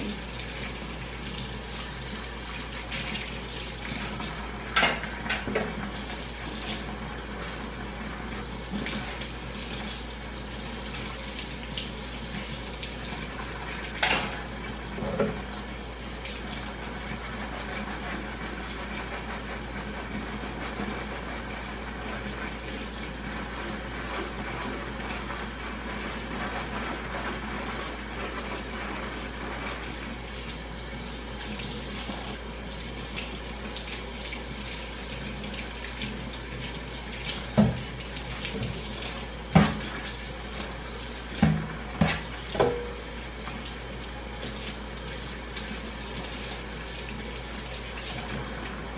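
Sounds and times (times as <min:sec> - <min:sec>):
tap running into sink: 0:03.9 - 0:06.9, 0:12.9 - 0:15.6, 0:37.2 - 0:43.7.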